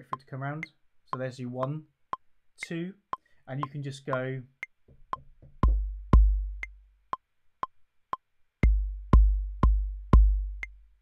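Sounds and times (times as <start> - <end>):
metronome clicking: 0.0 - 11.0
deep booming kick drum: 5.5 - 6.8, 8.6 - 10.7.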